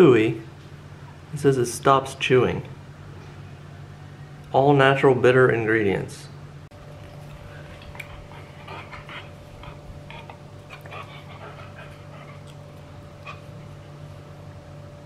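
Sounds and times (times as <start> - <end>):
steady low hum: 0.0 - 15.0
puppy panting: 7.3 - 14.0.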